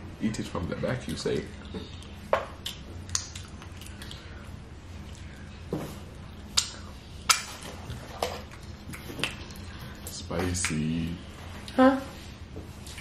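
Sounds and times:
low steady hum: 0.0s - 13.0s
person chewing crunchy chips: 1.9s - 5.4s.

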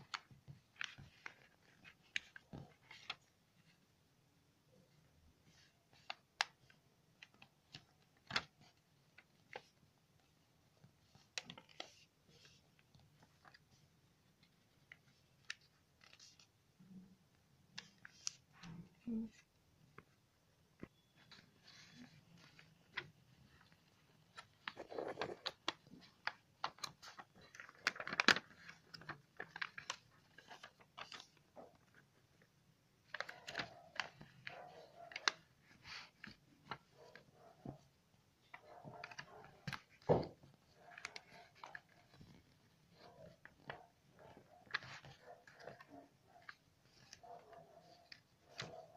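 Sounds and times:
paper being folded by hand: 0.0s - 3.9s, 4.8s - 20.2s, 20.8s - 48.9s.

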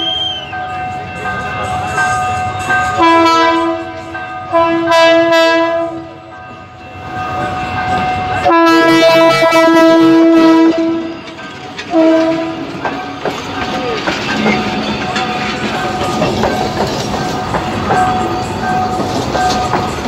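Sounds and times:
train horn blasts: 2.1s - 6.3s, 8.4s - 11.3s, 11.9s - 12.8s.

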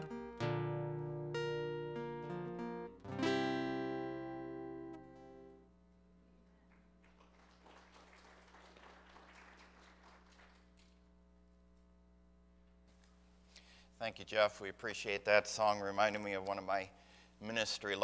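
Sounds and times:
acoustic guitar strummed chord: 0.0s - 5.7s.

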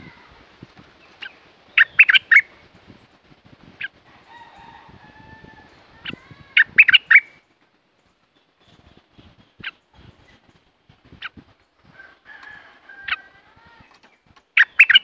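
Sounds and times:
bird singing: 1.0s - 2.7s, 5.3s - 15.0s.

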